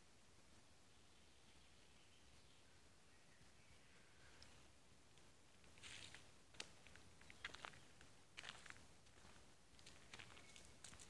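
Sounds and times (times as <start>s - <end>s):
footsteps crunching on forest floor: 5.6s - 11.0s.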